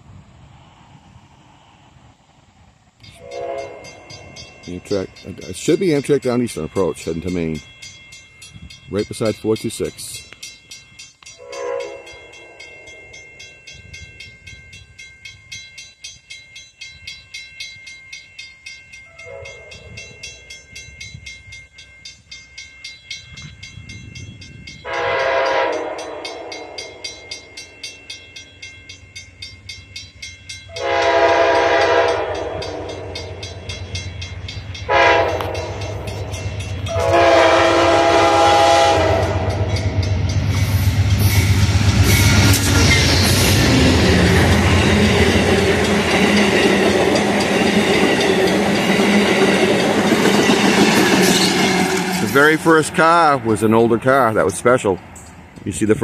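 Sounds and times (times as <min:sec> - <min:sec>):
rumble of oncoming train: 0:00.0 - 0:56.0
locomotive horn blasts: 0:03.2 - 0:04.0, 0:11.4 - 0:12.1, 0:24.8 - 0:26.8, 0:30.8 - 0:33.0, 0:34.9 - 0:35.7, 0:36.9 - 0:39.7.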